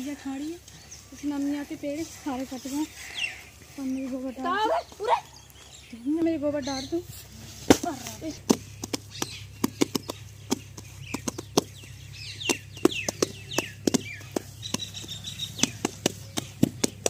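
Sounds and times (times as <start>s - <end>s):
birds chirping: 0.0s - 17.0s
hands slapping wet dung: 7.7s - 11.8s, 12.4s - 17.0s.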